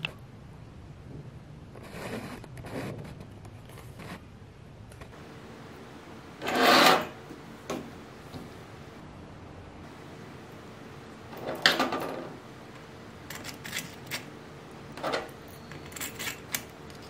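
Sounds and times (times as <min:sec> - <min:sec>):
metal clamp parts sliding on desk: 0:06.4 - 0:07.2, 0:15.0 - 0:17.0
metal scrape: 0:06.4 - 0:07.2.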